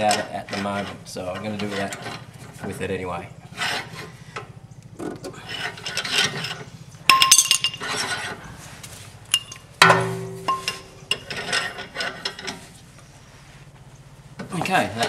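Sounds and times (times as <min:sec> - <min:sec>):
metallic clinks of tools: 0:07.1 - 0:07.8, 0:09.3 - 0:11.3.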